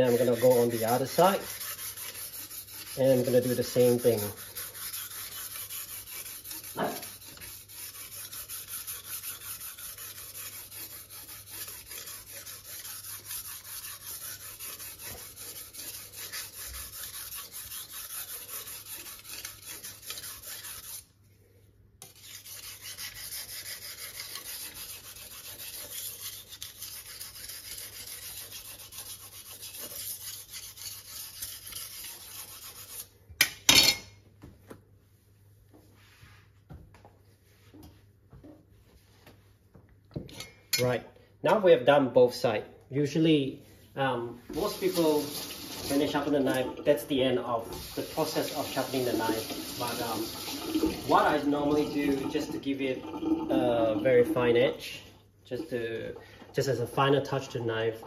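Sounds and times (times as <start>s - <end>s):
knife scraping on whetstone: 0.0s - 21.1s, 22.0s - 33.1s, 44.5s - 54.4s.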